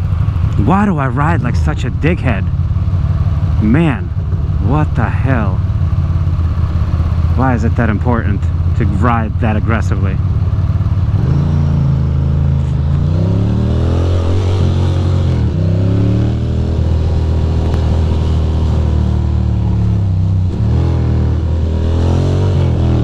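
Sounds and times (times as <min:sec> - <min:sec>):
motorcycle accelerating through gears: 0:10.2 - 0:23.0.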